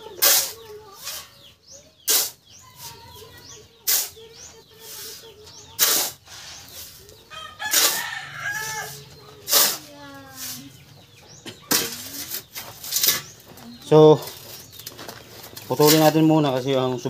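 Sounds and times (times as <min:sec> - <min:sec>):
shovel scraping in sand mix: 0:00.0 - 0:01.4, 0:02.0 - 0:10.8, 0:11.7 - 0:13.4, 0:15.7 - 0:16.3.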